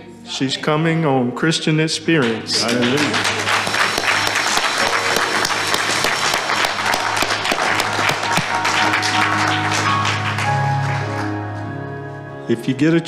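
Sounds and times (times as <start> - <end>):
congregation clapping: 2.1 - 11.6
instrumental music: 2.2 - 13.0.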